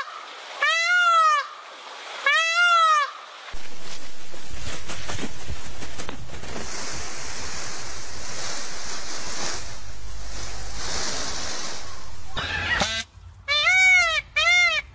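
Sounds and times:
wind rushing on microphone: 0:03.6 - 0:12.6.

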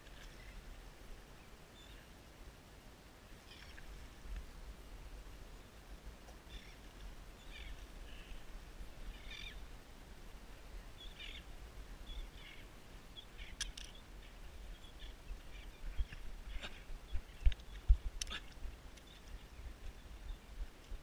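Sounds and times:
birds chirping: 0:06.4 - 0:09.7, 0:10.8 - 0:20.6.

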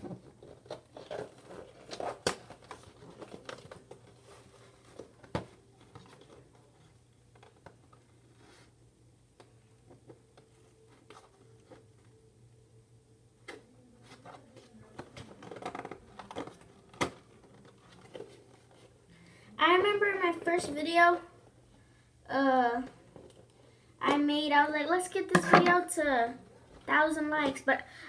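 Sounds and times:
plastic and cardboard crinkling: 0:00.0 - 0:08.0, 0:14.0 - 0:19.0
faint steady hum: 0:00.0 - 0:28.0.

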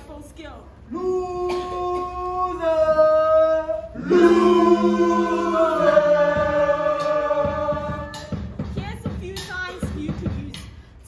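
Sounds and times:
voices singing in harmony: 0:00.9 - 0:08.5.

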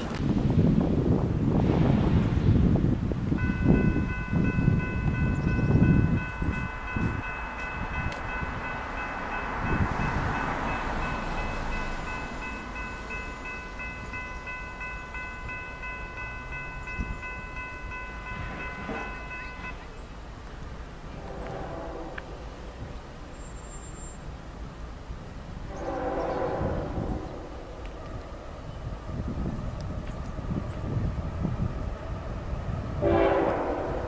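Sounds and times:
wind buffeting microphone: 0:00.0 - 0:34.0
train horn: 0:21.1 - 0:22.7, 0:25.7 - 0:27.9, 0:33.0 - 0:34.0.

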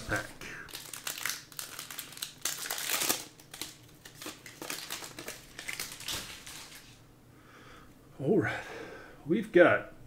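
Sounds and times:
foil wrapper crinkling: 0:00.0 - 0:07.0
cards clicking and rustling: 0:00.7 - 0:06.9.

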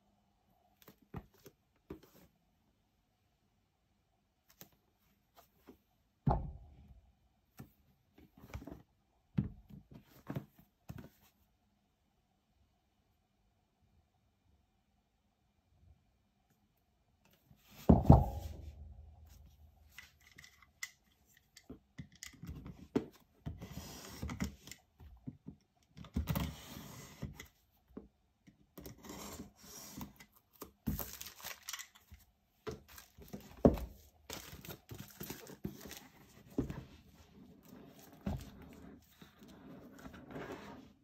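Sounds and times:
shrink-wrap crinkling and rustling: 0:30.5 - 0:36.5.

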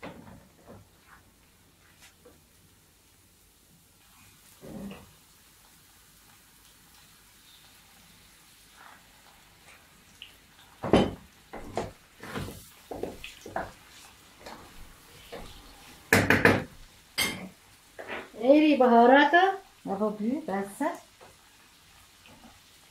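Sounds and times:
wooden spatula scraping a frying pan: 0:11.6 - 0:16.1, 0:18.0 - 0:18.4.

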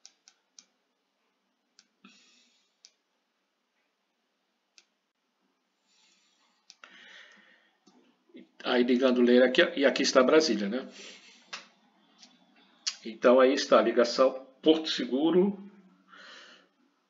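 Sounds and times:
faint computer mouse clicks: 0:02.8 - 0:03.0.

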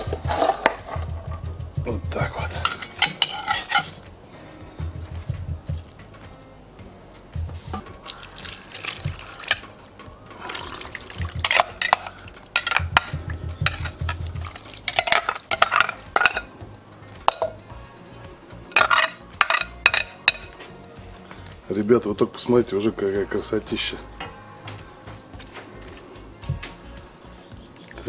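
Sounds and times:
metal spoon scraping a metal bowl: 0:02.5 - 0:04.1, 0:11.4 - 0:13.0, 0:14.9 - 0:16.5, 0:18.8 - 0:20.5
sauce splashing: 0:08.0 - 0:09.7, 0:10.4 - 0:12.8, 0:13.8 - 0:15.6.

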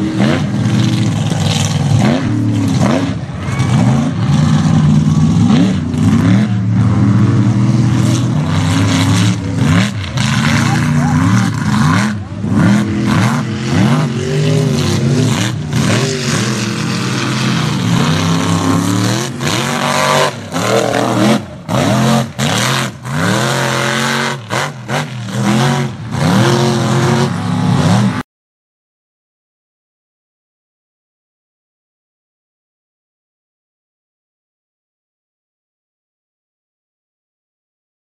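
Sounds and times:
truck engine revving: 0:00.0 - 0:28.2.

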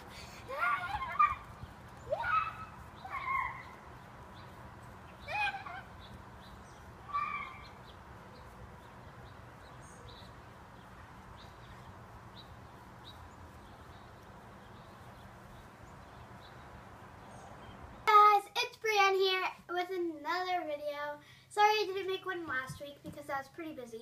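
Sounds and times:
small birds chirping: 0:00.0 - 0:18.4
loud pitched bird call: 0:00.8 - 0:08.6.

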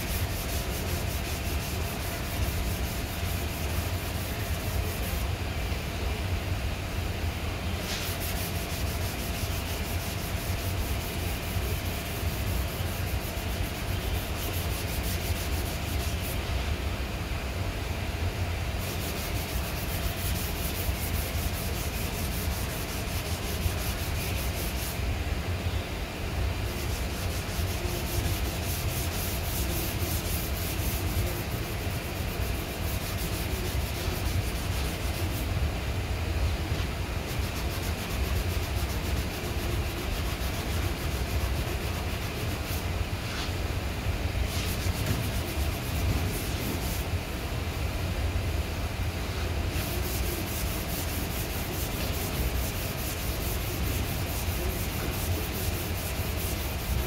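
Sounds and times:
hand sanding strokes: 0:00.0 - 0:05.3, 0:07.8 - 0:16.5, 0:18.8 - 0:25.0, 0:26.6 - 0:35.6, 0:36.7 - 0:43.5, 0:44.4 - 0:47.2, 0:49.7 - 0:57.0.

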